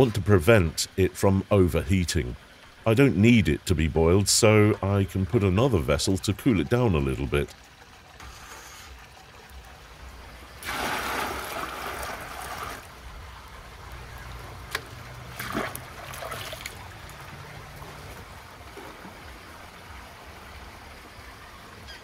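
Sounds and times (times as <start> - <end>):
milk splashing and trickling: 3.6 - 20.8.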